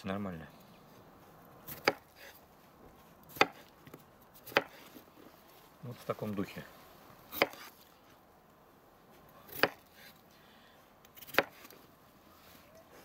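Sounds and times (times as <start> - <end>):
knife chopping on wooden board: 1.6 - 2.4, 3.3 - 5.0, 7.3 - 7.8, 9.5 - 10.2, 11.2 - 11.8.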